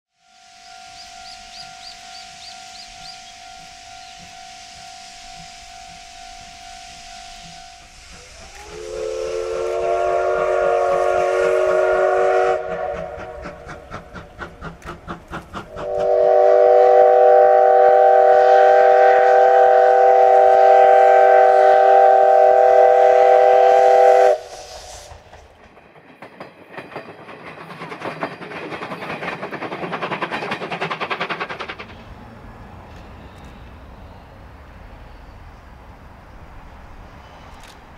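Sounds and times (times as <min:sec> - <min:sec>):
steam whistle blasts: 0:00.2 - 0:13.6, 0:15.7 - 0:25.2
steam rushing and chuffing: 0:00.3 - 0:32.9.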